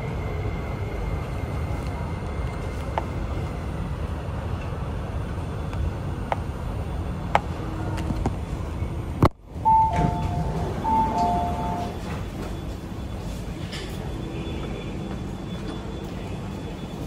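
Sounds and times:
train rumbling in a tunnel: 0.0s - 17.0s
two-note door chime: 9.7s - 12.0s.

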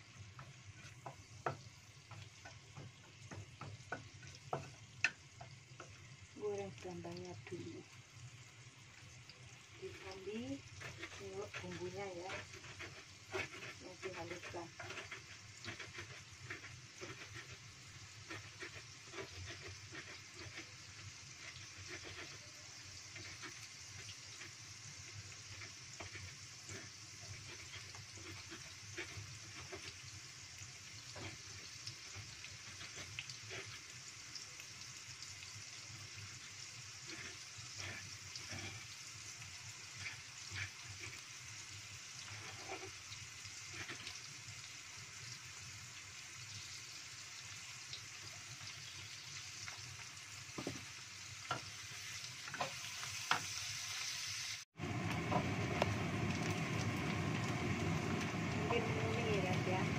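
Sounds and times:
wooden spatula stirring: 0.0s - 7.8s, 9.5s - 44.7s, 48.0s - 53.5s
shallots sizzling in hot oil: 0.0s - 59.9s
oil popping and crackling: 8.6s - 45.5s, 54.5s - 59.8s.

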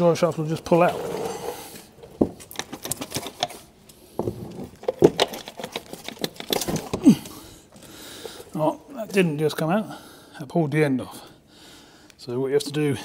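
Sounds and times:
metallic clicks and knocks: 4.7s - 7.0s.

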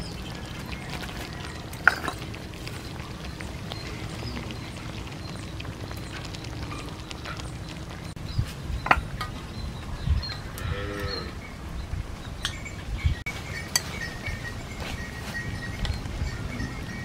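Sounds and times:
wood fire pops and crackles: 0.0s - 10.5s
stew simmering: 0.0s - 16.4s.

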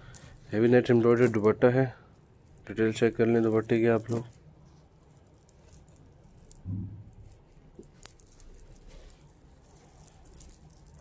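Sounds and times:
bead tassels clicking: 0.0s - 11.0s
fabric rustling: 2.4s - 11.0s
low thump: 6.7s - 7.2s.

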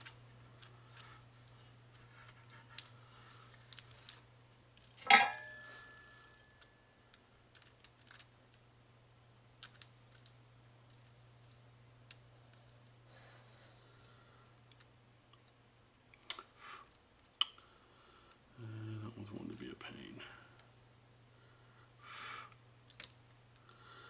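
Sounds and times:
steady low hum: 0.0s - 24.0s
ringing metallic clink: 5.1s - 6.4s.

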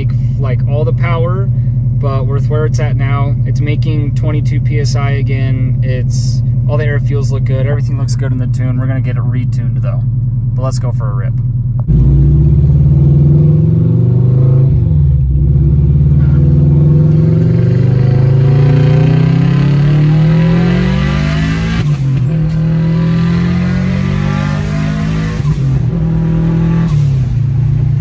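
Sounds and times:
turbocharged car engine accelerating: 11.8s - 28.0s.

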